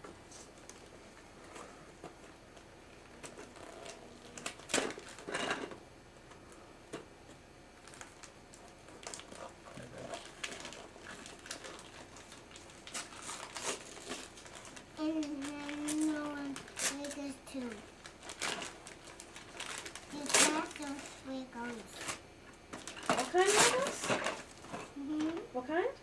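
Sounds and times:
wrapping paper tearing: 3.2s - 5.3s, 7.8s - 22.2s, 22.8s - 24.7s.

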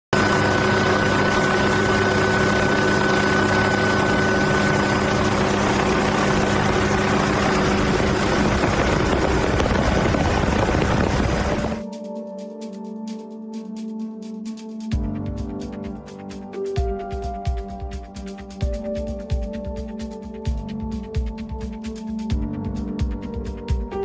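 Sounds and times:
helicopter engine and rotor: 0.2s - 11.8s
high whine: 0.2s - 11.8s.

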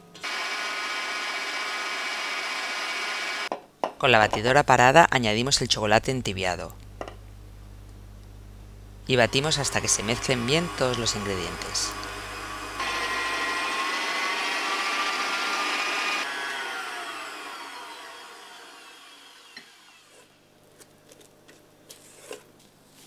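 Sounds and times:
stand mixer motor whining: 0.2s - 3.5s, 9.1s - 20.3s.

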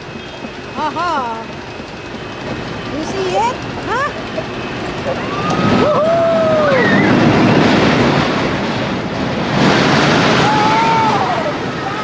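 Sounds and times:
roller coaster train rumbling: 0.0s - 12.0s
high squeals: 1.6s - 8.6s.

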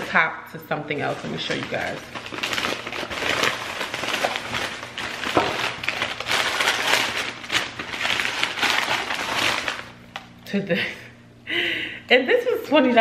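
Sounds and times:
wrapping paper crinkling: 0.9s - 10.3s.

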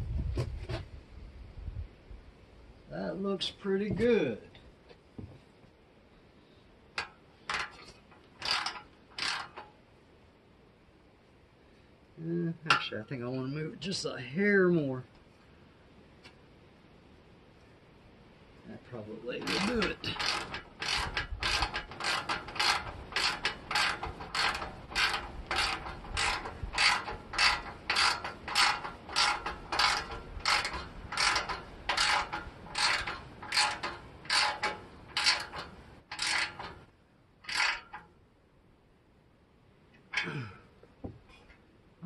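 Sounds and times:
ratchet wrench clicking: 8.4s - 9.6s, 19.4s - 36.8s, 37.4s - 38.0s.

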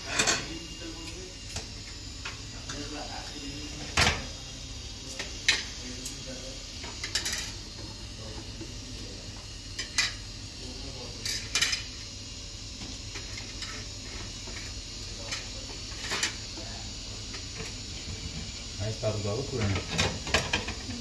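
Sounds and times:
utensils clinking on plates: 0.0s - 0.6s
steady low hum: 0.0s - 21.0s.

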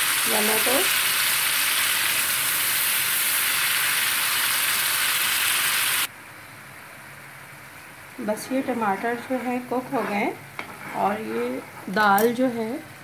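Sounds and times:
paste sizzling in oil: 0.0s - 6.1s.

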